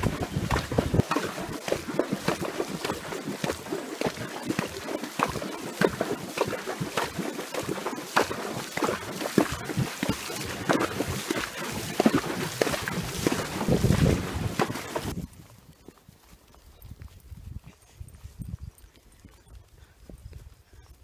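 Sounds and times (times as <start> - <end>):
hooves splashing in water: 0.0 - 16.3
wind rumbling on microphone: 0.0 - 21.0.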